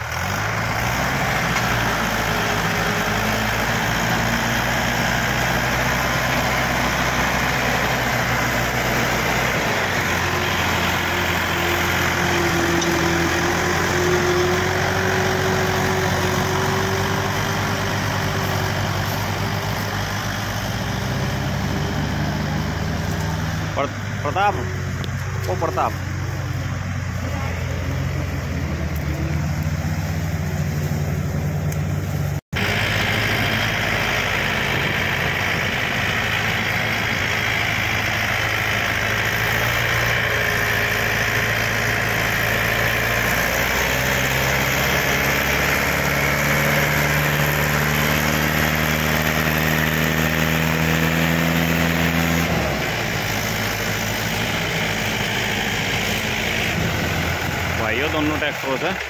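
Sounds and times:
tractor diesel engines under load: 0:00.0 - 0:59.0.

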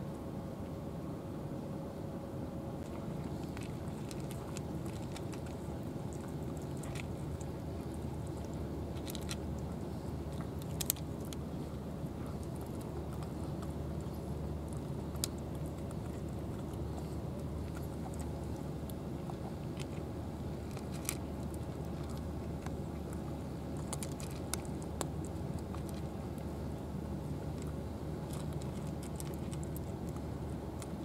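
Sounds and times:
low background rumble: 0:00.0 - 0:31.0
cats crunching dry food: 0:02.8 - 0:31.0.

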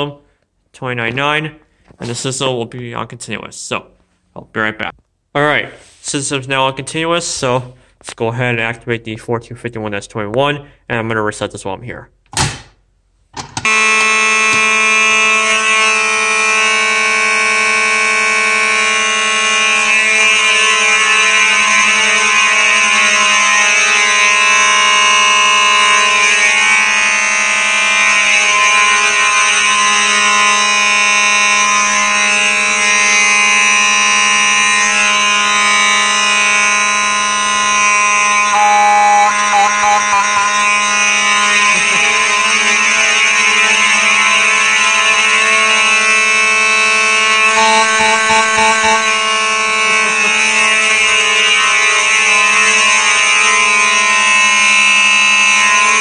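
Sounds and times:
fire alarm horn buzzing: 0:13.6 - 0:56.0.

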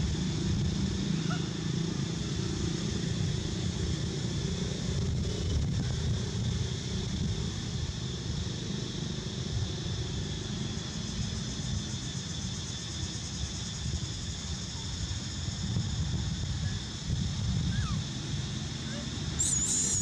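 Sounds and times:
high-pitched drone: 0:19.4 - 0:20.0.

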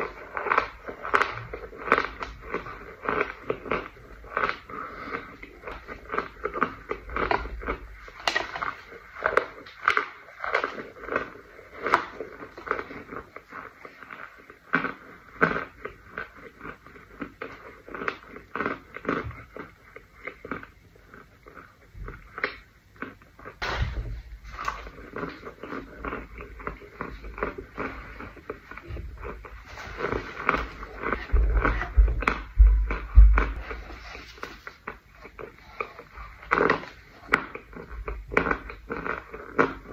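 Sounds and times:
low rumble: 0:30.6 - 0:34.1.

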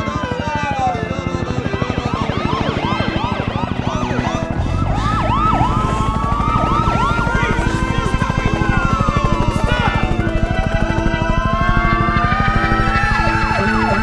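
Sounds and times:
police sirens yelping and wailing: 0:00.0 - 0:14.0
fast rock beat: 0:03.8 - 0:14.0.

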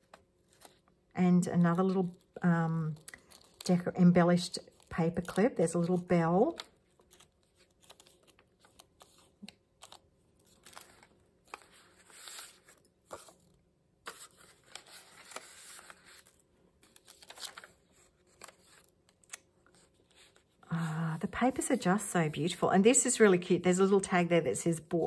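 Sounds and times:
paper pages rustling: 0:00.0 - 0:00.9, 0:05.8 - 0:22.1.

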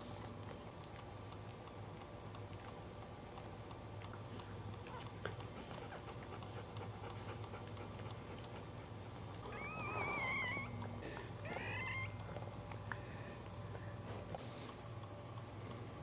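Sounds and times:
steady low hum: 0:00.0 - 0:16.0
puppy squealing: 0:09.4 - 0:12.4.

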